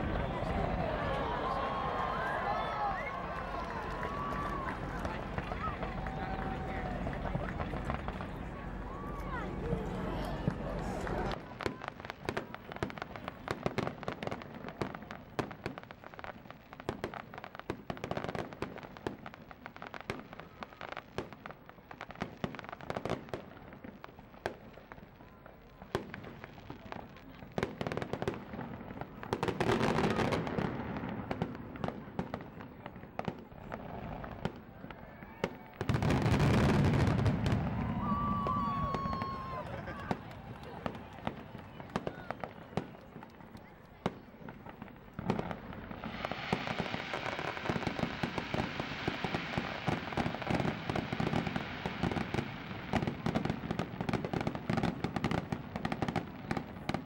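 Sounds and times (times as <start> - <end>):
fireworks cracking and crackling: 0.0 - 57.0.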